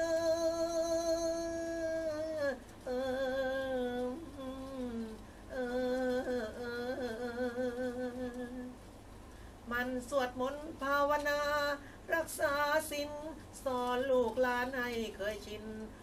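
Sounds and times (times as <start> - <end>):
man singing long held notes: 0.0 - 8.8.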